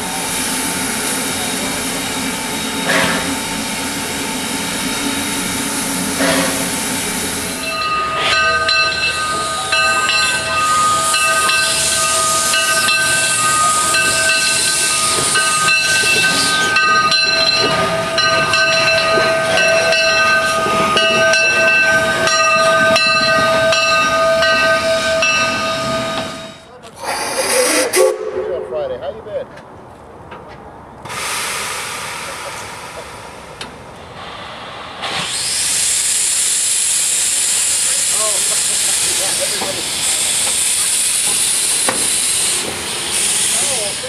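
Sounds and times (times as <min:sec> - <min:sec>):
steam hissing: 0:00.0 - 0:28.4, 0:31.1 - 0:44.0
steam locomotive chuffing: 0:00.0 - 0:28.7, 0:31.1 - 0:44.0
steady high-pitched tones: 0:07.1 - 0:26.7.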